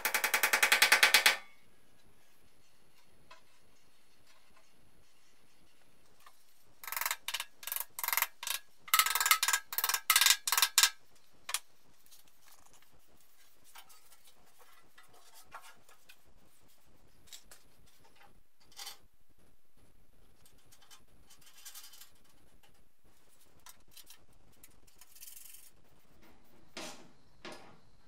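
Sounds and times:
faint handling noises: 0:11.0 - 0:28.0.

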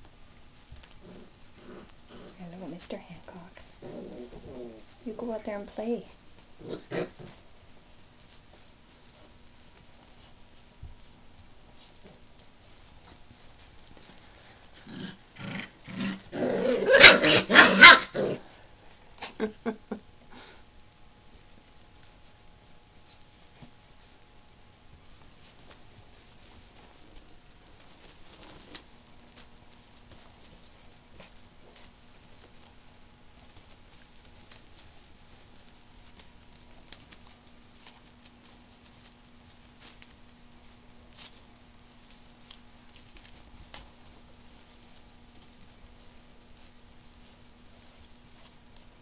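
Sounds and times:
puppies pattering on blanket: 0:00.0 - 0:49.0
puppies growling and yapping: 0:00.8 - 0:02.6, 0:03.6 - 0:05.0, 0:06.6 - 0:07.5, 0:14.0 - 0:18.6
puppy yelps: 0:16.6 - 0:18.3.

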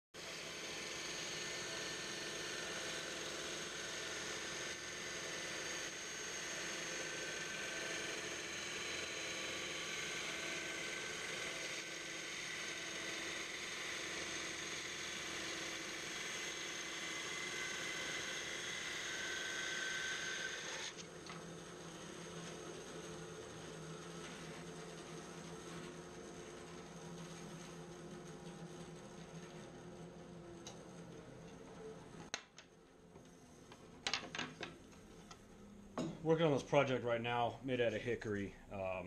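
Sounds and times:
bandsaw cutting wood: 0:00.2 - 0:27.6.

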